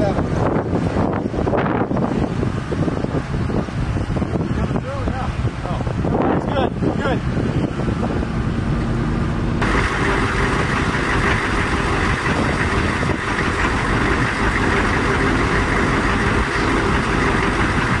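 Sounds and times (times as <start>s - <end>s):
street traffic noise: 0.0s - 18.0s
diesel engine idling: 0.4s - 18.0s.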